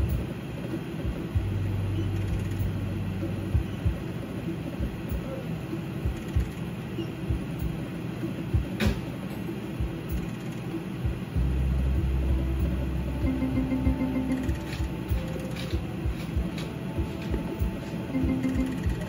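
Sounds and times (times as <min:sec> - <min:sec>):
rumbling background: 0:00.0 - 0:19.0
steady low hum: 0:00.0 - 0:19.0
slot machine reels spinning: 0:13.1 - 0:19.0.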